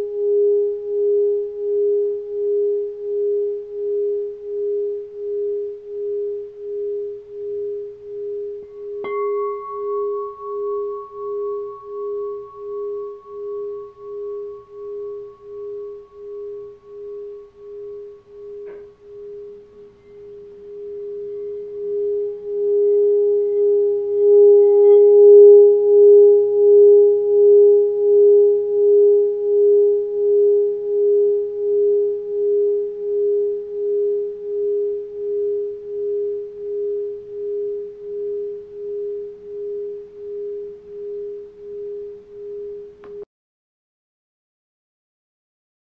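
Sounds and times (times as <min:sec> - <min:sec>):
singing bowl ringing: 0:00.0 - 0:43.2
mallet rubbing bowl rim: 0:07.4 - 0:30.6
mallet tapping singing bowl: 0:08.6 - 0:27.1.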